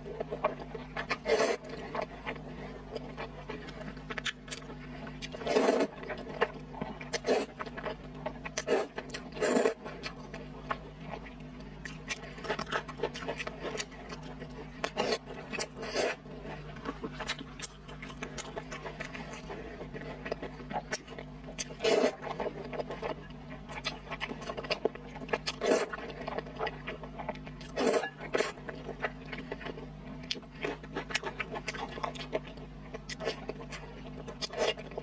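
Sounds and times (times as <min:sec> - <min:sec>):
faint steady hum: 0:00.0 - 0:35.0
chewing and mouth smacks: 0:00.3 - 0:35.0
slurping noodles: 0:01.2 - 0:01.9, 0:05.4 - 0:05.9, 0:07.2 - 0:07.6, 0:08.6 - 0:09.8, 0:15.0 - 0:16.2, 0:21.8 - 0:22.2, 0:25.6 - 0:26.0, 0:27.8 - 0:28.6.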